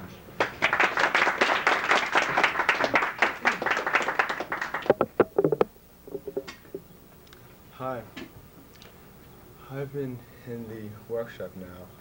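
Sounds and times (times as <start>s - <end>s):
audience applauding: 0.4s - 5.6s.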